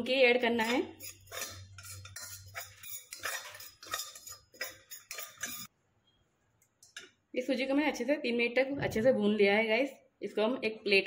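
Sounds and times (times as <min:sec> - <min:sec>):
metal spoon scraping saucepan: 0:00.4 - 0:05.7.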